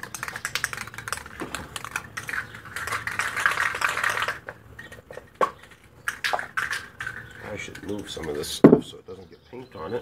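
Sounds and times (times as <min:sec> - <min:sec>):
spray can rattling: 0:00.0 - 0:08.6.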